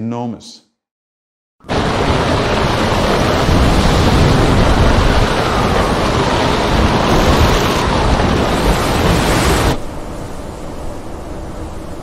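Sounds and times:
water rushing past hulls: 0:01.6 - 0:09.8
wind buffeting microphone: 0:01.8 - 0:10.2.

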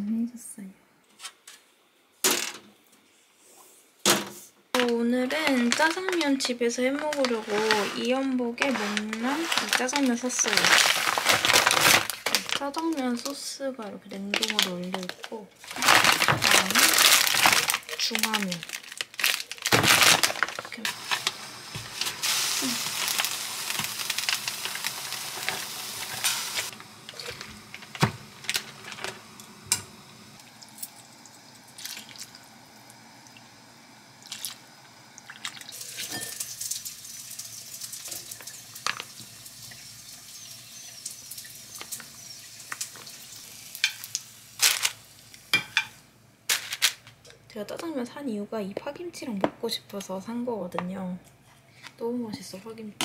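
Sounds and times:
water running and splashing: 0:20.0 - 0:29.1, 0:30.4 - 0:32.6, 0:34.1 - 0:44.9
metal utensils clinking on bowl: 0:35.9 - 0:36.6.

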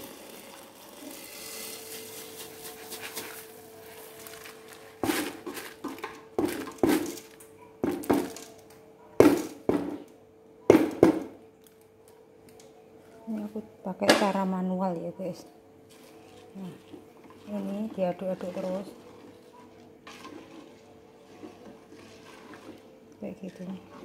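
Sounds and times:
basket knocking against pot: 0:05.0 - 0:08.5, 0:09.2 - 0:10.1, 0:10.7 - 0:11.4.

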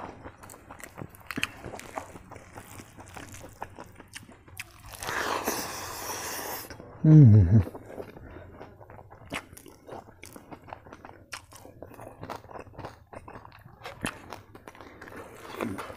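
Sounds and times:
chewing with wet mouth clicks: 0:00.0 - 0:05.8, 0:07.6 - 0:15.9
short vocal hum: 0:07.0 - 0:07.7.

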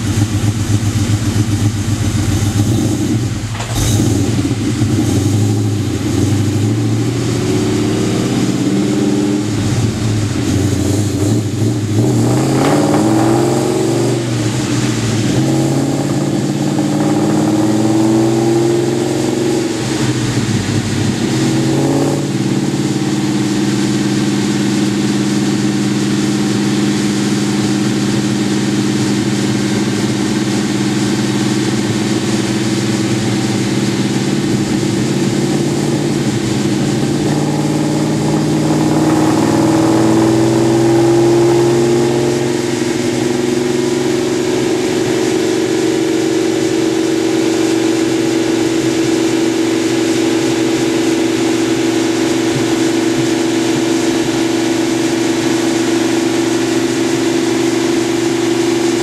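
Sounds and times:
car engine revving on dyno: 0:00.0 - 0:59.0.

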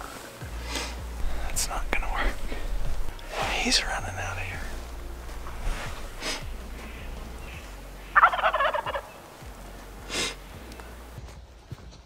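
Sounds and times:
turkey gobbling: 0:05.4 - 0:09.2.

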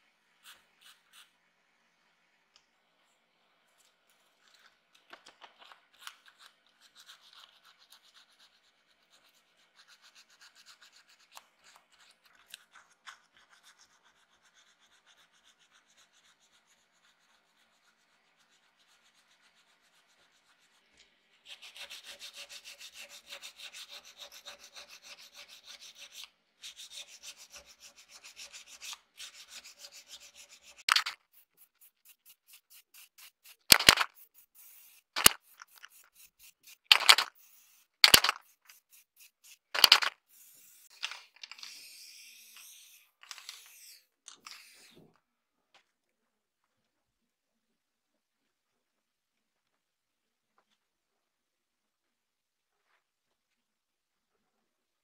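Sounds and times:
sandpaper rubbing: 0:06.0 - 0:45.1.

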